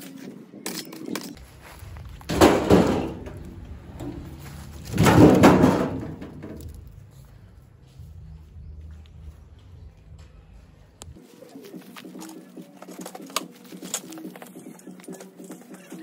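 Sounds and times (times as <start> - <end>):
cart rattling: 1.0 - 7.1
logs dropped onto metal cart: 1.2 - 7.0.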